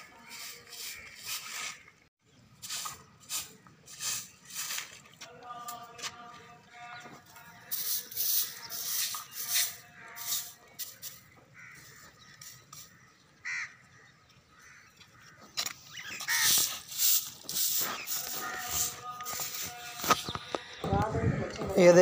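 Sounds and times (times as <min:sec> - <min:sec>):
broom sweeping on concrete: 0:00.0 - 0:01.9, 0:02.5 - 0:05.2, 0:07.5 - 0:11.3, 0:16.0 - 0:20.4
crow cawing: 0:11.5 - 0:12.2, 0:13.4 - 0:15.5, 0:16.2 - 0:16.6, 0:18.2 - 0:19.0.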